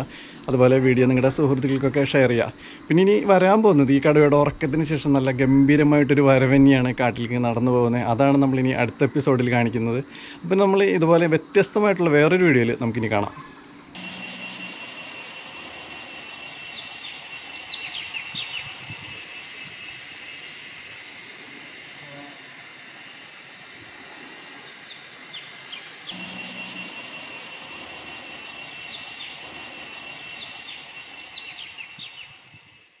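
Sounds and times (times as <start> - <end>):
bird chirps: 14.0 - 21.0, 24.6 - 32.9
high-pitched insect drone: 14.0 - 33.0.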